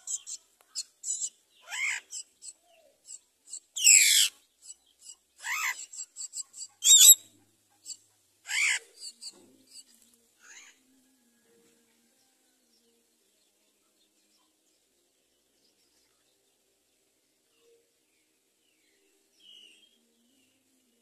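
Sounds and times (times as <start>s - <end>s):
nestlings begging calls: 0.0s - 7.2s, 7.8s - 9.8s.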